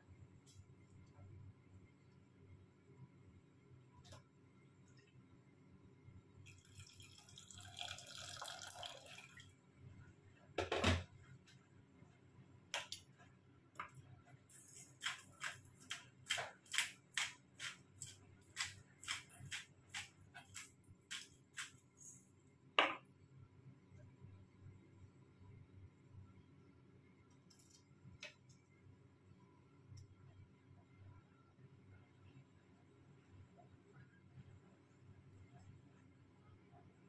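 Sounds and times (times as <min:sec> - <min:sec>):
water pouring into a steel pot: 0:06.4 - 0:09.6.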